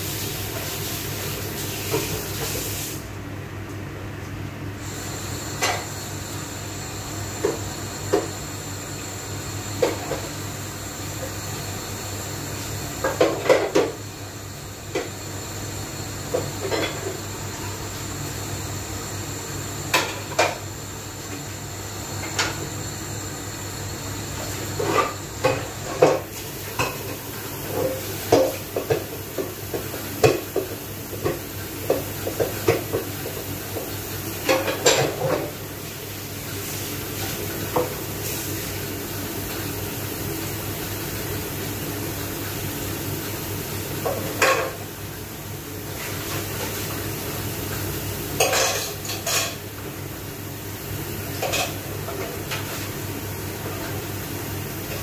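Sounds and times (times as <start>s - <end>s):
dishes clinking in a sink: 34.4s - 35.6s, 44.0s - 44.8s, 48.4s - 49.6s, 51.4s - 52.8s.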